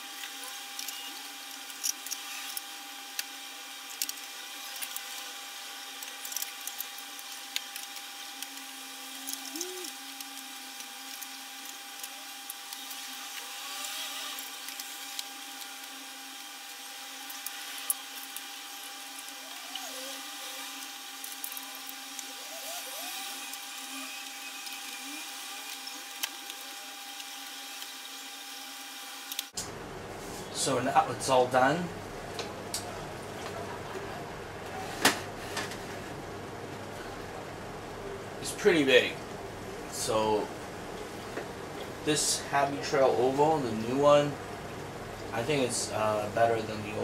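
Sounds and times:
steady hum: 0.0s - 47.0s
plastic tubes squeaking: 5.9s - 28.0s.

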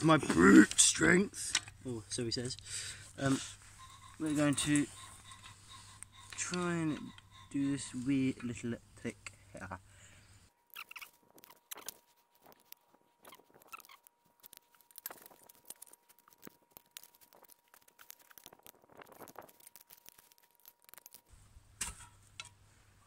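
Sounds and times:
iron bars clicking and scraping: 3.2s - 9.4s.

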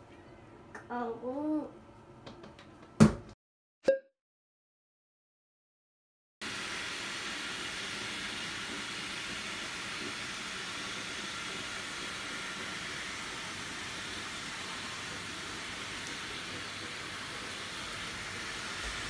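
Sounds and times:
shower water splashing into bath: 6.4s - 19.0s.

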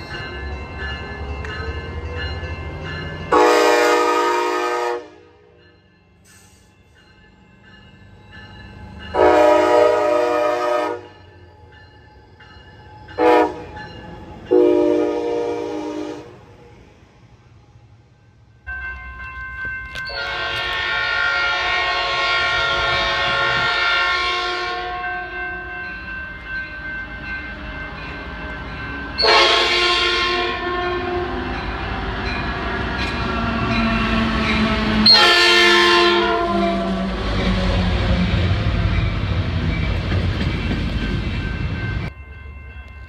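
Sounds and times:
train rumbling past: 0.0s - 43.0s
locomotive air horn blasts: 3.3s - 5.4s, 9.2s - 11.1s, 13.2s - 13.7s, 14.5s - 16.4s, 20.1s - 25.4s, 29.2s - 31.5s, 34.9s - 37.9s.

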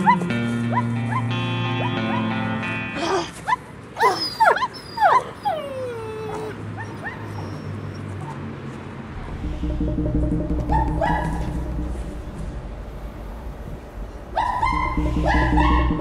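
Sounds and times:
music: 0.0s - 3.2s, 9.1s - 16.0s
dog whimpering and yipping: 3.0s - 8.4s, 14.4s - 15.8s.

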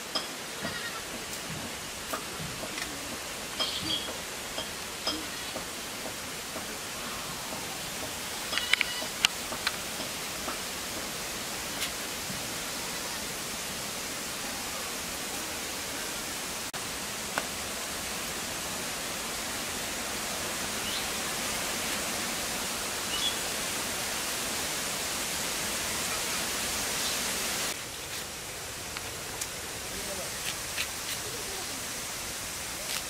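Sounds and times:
steady outdoor hiss: 0.0s - 33.0s.

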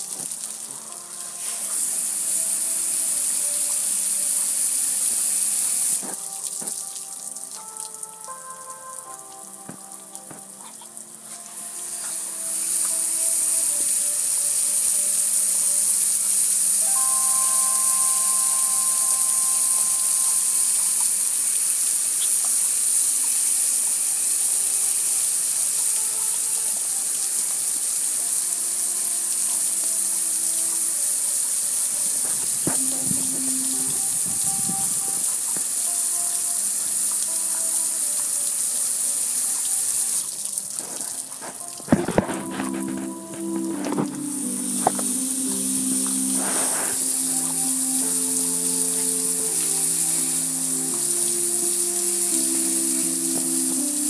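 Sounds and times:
water splashing on grill: 14.9s - 43.0s.

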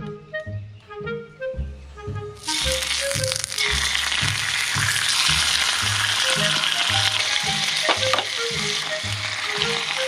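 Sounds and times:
background music: 0.0s - 10.0s
ham sizzling in a wok: 2.4s - 10.0s.

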